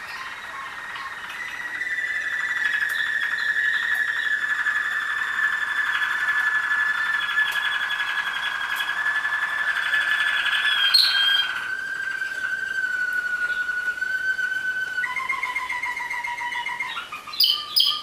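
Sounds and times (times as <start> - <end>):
canaries singing trilled notes: 0.0 - 18.0.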